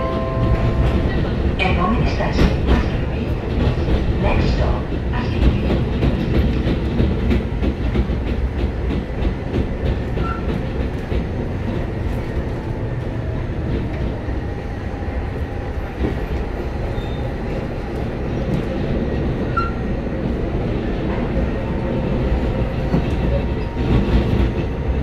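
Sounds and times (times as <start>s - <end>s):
regular track clicks: 0.0s - 14.6s
tram wheels rumbling: 0.0s - 25.0s.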